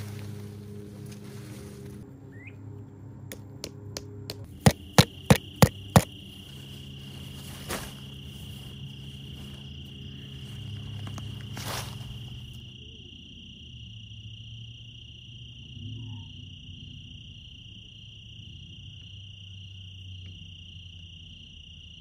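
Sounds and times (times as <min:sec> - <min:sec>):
low hum: 0:00.0 - 0:20.5
tent stake hammered into ground: 0:03.3 - 0:06.2
insect buzzing: 0:03.3 - 0:20.2.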